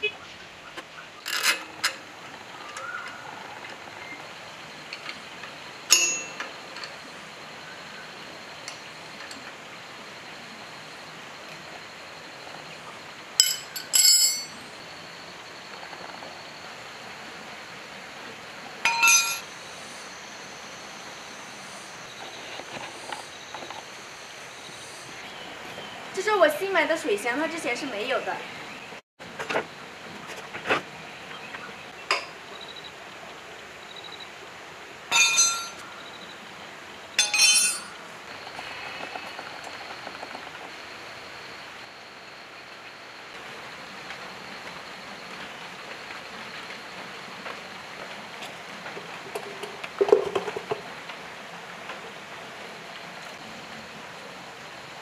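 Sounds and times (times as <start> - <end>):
steel wrenches clinking: 1.2 - 2.0, 5.9 - 6.9, 13.4 - 14.6, 18.9 - 19.5, 35.1 - 35.8, 37.2 - 38.0
ringing metal clank: 5.9 - 6.5, 13.4 - 14.6, 18.8 - 19.5, 35.1 - 35.8, 37.2 - 38.0.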